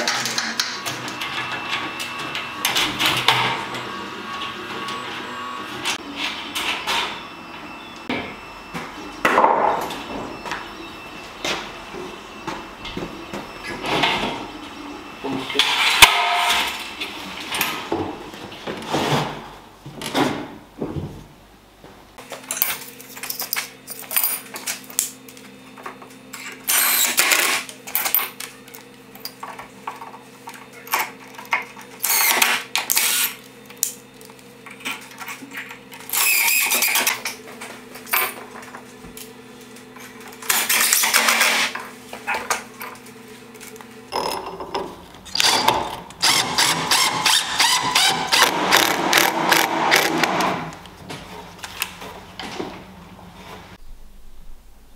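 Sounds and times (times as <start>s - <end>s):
drill driving screws: 26.7s - 27.6s, 32.0s - 33.4s, 36.1s - 37.2s, 45.3s - 50.7s
low hum: 53.8s - 54.9s.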